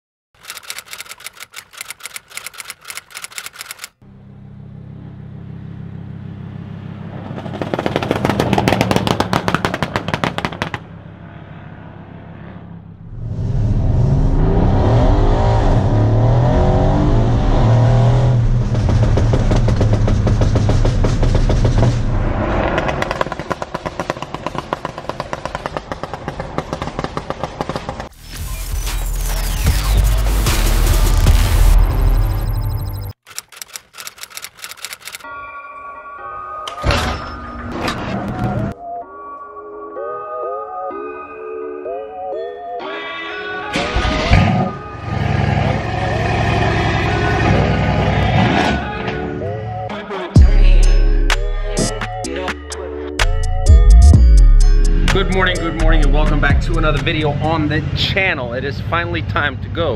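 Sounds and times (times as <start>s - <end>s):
typewriter-style clicking: 0.4s - 4.0s, 33.2s - 35.2s
car engine accelerating: 4.0s - 33.0s, 43.8s - 49.6s, 53.7s - 58.0s
exhaust crackling and popping: 7.4s - 11.0s, 18.5s - 28.1s.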